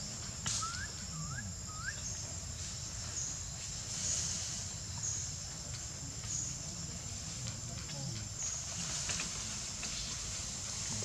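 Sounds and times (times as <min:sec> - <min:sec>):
high-pitched insect drone: 0:00.0 - 0:05.4
rising bird whistles: 0:00.6 - 0:02.0.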